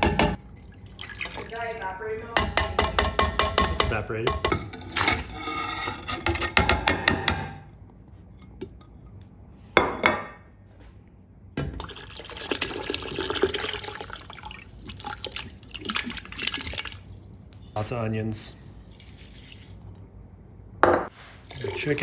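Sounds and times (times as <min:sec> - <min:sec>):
liquid pouring and splashing into pot: 0:00.4 - 0:01.8, 0:11.6 - 0:17.7.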